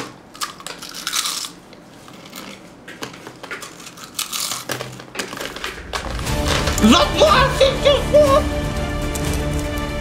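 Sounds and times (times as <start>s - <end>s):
potato chip crunching: 0.3s - 1.7s, 3.6s - 7.3s.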